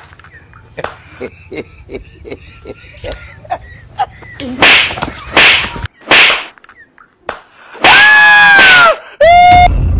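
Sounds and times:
whip-like swishing lashes: 4.5 - 6.6
high-pitched scream: 7.8 - 9.8.

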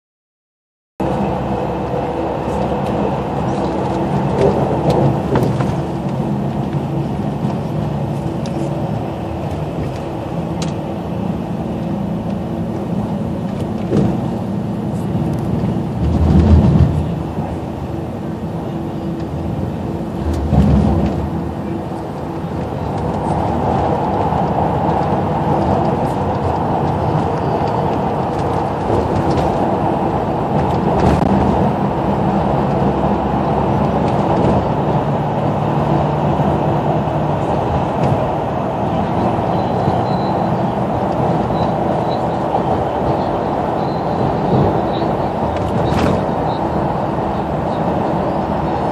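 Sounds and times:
bus engine and road drone: 1.0 - 48.9.

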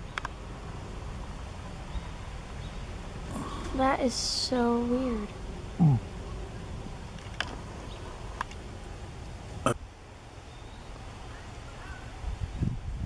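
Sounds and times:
sharp clicks: 0.1 - 0.4.

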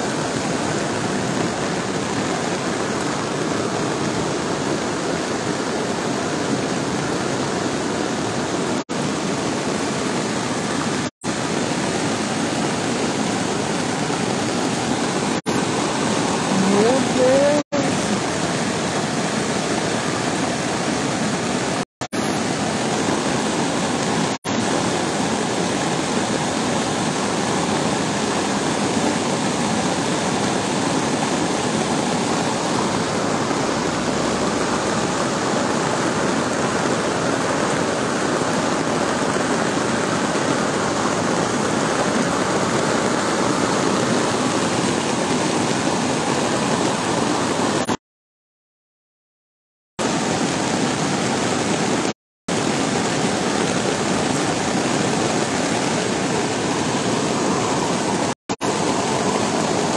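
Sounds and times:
floodwater rushing: 0.0 - 48.0, 50.0 - 59.9.

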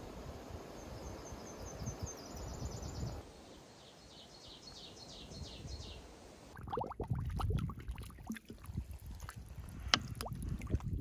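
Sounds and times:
songbirds chirping: 0.3 - 6.6.

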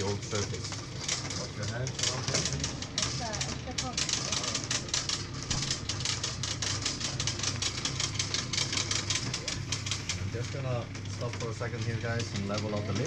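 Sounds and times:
cable lift clicking and rattling: 0.0 - 13.0.

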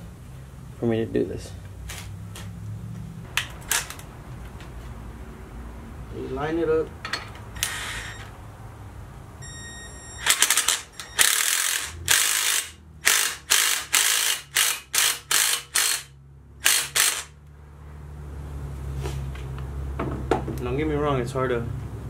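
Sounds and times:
ratchet wrench clicking: 10.2 - 17.4.

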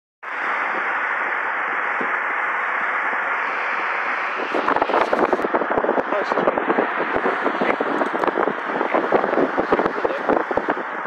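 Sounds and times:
crackling and thumps on microphone: 4.4 - 11.0.

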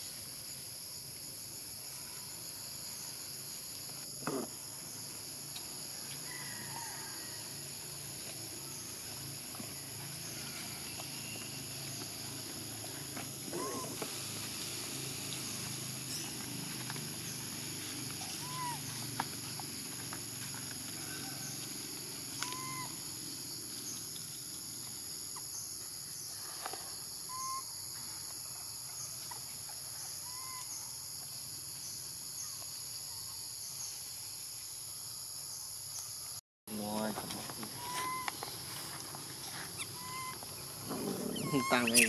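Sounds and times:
rising-and-falling call: 39.8 - 42.0.

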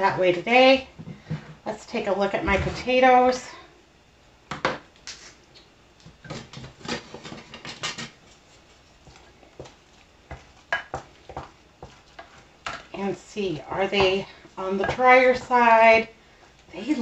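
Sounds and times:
spoon mashing potatoes: 6.0 - 17.0.

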